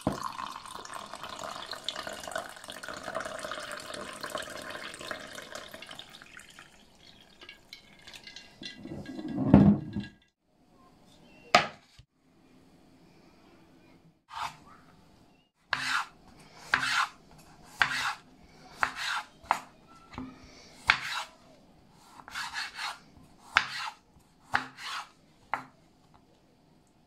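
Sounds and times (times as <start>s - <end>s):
knife slicing lemon: 15.7s - 18.2s, 22.1s - 25.1s.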